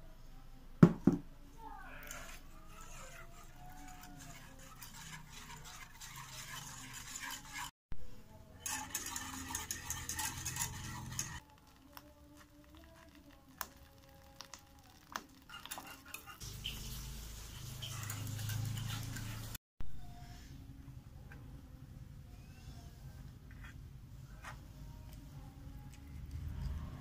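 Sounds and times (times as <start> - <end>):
whisk scraping metal saucepan: 2.1 - 7.7, 8.5 - 11.5, 14.9 - 19.6.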